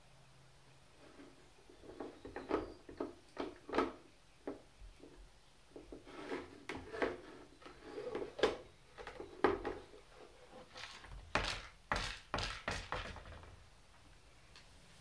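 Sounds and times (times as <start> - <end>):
plastic puzzle clunking on wood floor: 1.8 - 4.6, 10.6 - 13.6.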